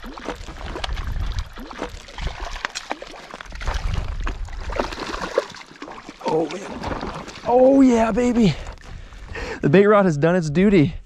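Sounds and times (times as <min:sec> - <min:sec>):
fish splashing at water surface: 0:00.0 - 0:07.6.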